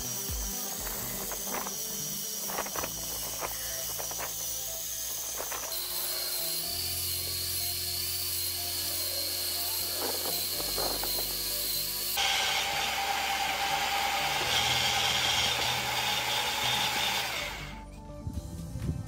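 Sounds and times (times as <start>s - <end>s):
tines clattering through soil: 0.0s - 6.3s, 9.6s - 11.6s
angle grinder motor whine: 0.0s - 17.8s
background music: 0.0s - 19.0s.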